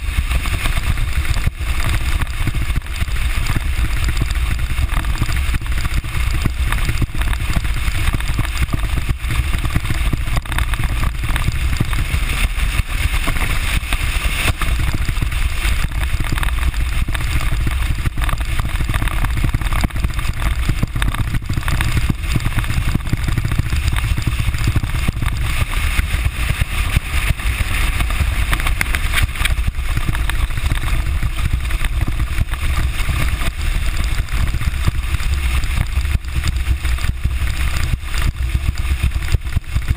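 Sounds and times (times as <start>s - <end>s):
outboard motor running: 0.0s - 39.9s
water rushing along hull: 0.0s - 39.9s
wind rumble on microphone: 0.0s - 39.9s.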